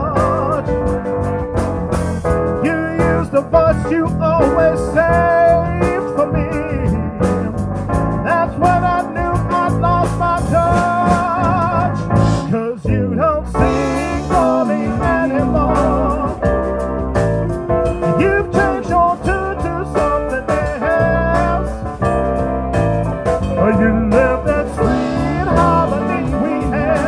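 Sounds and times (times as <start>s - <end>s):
live band playing: 0.0s - 27.0s
wavering lead line: 13.6s - 21.2s.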